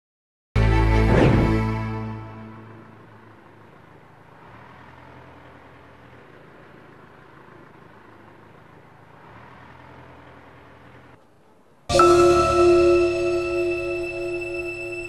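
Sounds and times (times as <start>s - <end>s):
distant road traffic rumble: 1.3s - 11.9s.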